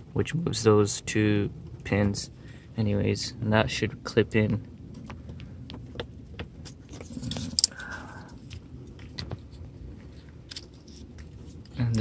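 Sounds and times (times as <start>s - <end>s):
plastic parts clicking and rattling: 5.7s - 12.0s.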